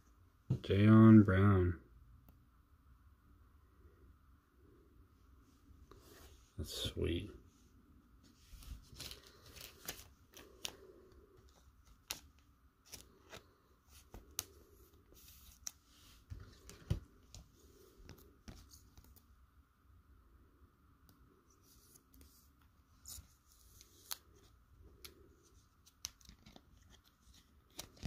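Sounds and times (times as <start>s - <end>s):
plastic card sleeve rustling: 8.3s - 19.3s, 21.6s - 28.0s.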